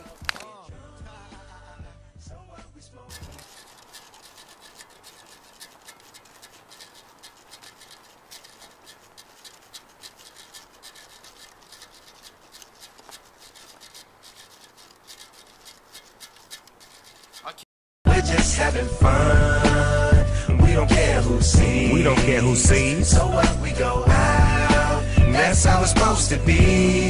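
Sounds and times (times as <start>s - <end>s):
scratchy crackling hiss: 0.0s - 0.5s, 3.1s - 17.6s.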